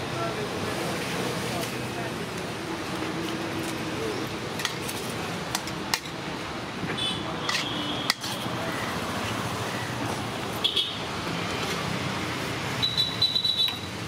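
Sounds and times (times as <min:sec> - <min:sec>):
roadside traffic hum: 0:00.0 - 0:14.0
metal vessels and scoop clinking: 0:07.5 - 0:08.5.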